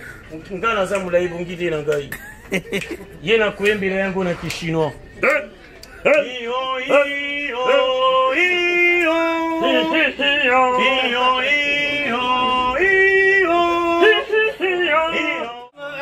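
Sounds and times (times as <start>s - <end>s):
man singing: 5.2s - 16.0s.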